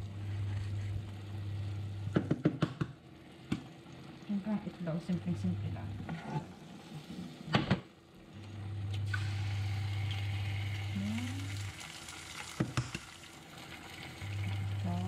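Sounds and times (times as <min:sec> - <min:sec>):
low steady hob hum: 0:00.0 - 0:15.0
egg sizzling in hot oil: 0:09.0 - 0:15.0
egg cracking against pan: 0:11.8 - 0:13.3.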